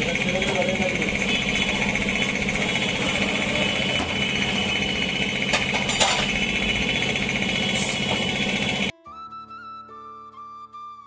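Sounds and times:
tyre-changing machine humming: 0:00.0 - 0:08.9.

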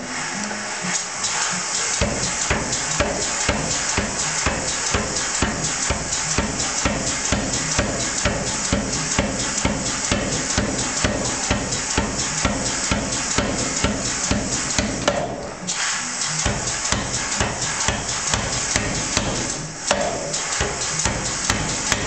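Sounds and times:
power hammer striking steel bar: 0:01.8 - 0:15.4, 0:16.2 - 0:22.0.

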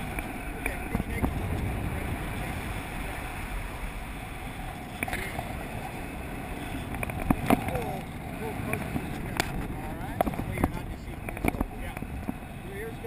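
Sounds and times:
wind rushing over microphone: 0:00.0 - 0:13.0
faint clicks: 0:06.8 - 0:12.4.

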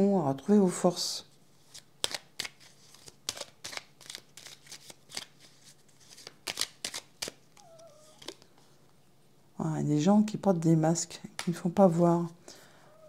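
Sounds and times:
cards being shuffled: 0:01.6 - 0:08.6.

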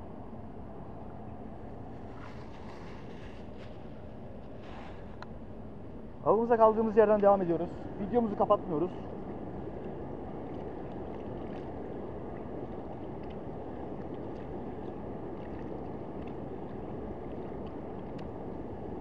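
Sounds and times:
stream flowing: 0:06.9 - 0:19.0.

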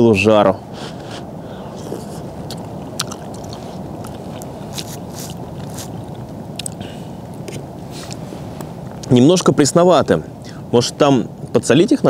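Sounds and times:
steady rain in a forest: 0:03.6 - 0:12.0.

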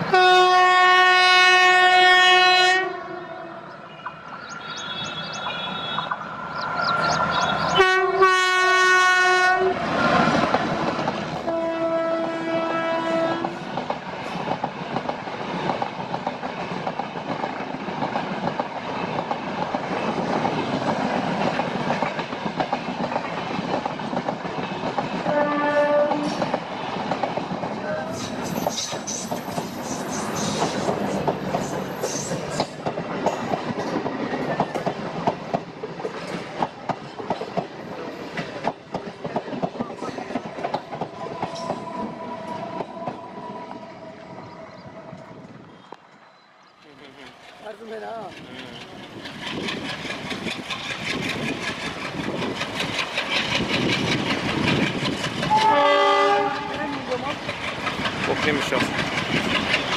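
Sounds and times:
train horn blast: 0:00.0 - 0:03.6, 0:07.8 - 0:10.2, 0:11.4 - 0:13.6, 0:25.2 - 0:26.5, 0:55.5 - 0:57.0
train wheels clattering over rail joints: 0:13.4 - 0:43.2, 0:47.2 - 0:59.9.

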